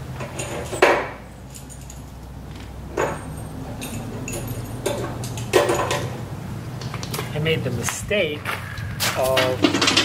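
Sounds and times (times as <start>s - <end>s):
metal parts clanking: 2.9s - 6.2s, 9.1s - 10.0s
sharp metallic knocks: 2.9s - 6.2s, 9.0s - 10.0s.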